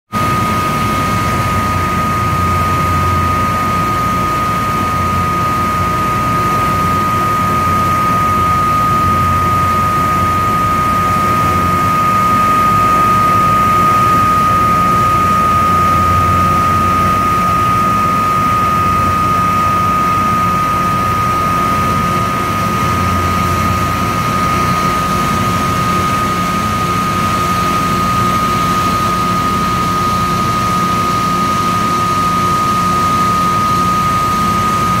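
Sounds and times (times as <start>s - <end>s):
high steady whine: 0.2s - 35.0s
loud machine drone: 0.2s - 35.0s
low machine hum: 0.2s - 35.0s.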